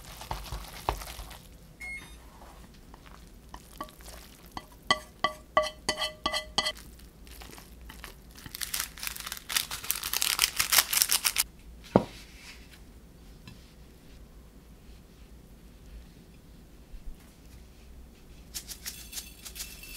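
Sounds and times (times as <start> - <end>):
frying pan knocking: 4.6 - 6.7
plastic sachet tearing and crinkling: 6.8 - 11.4.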